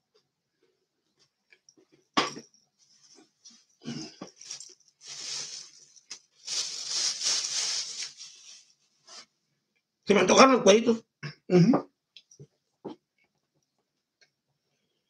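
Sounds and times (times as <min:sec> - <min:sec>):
rustling and crinkling: 0:01.1 - 0:09.4.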